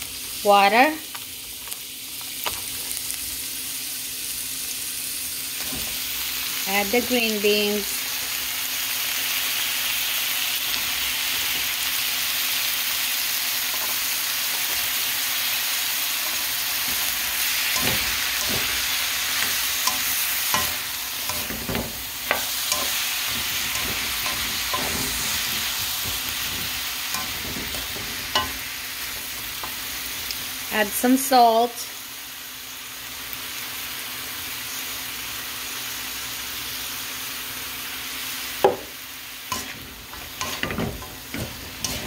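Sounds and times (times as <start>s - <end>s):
vegetables sizzling in a pan: 0.0s - 42.0s
spatula scraping and tapping pan: 16.2s - 30.4s, 39.5s - 42.0s.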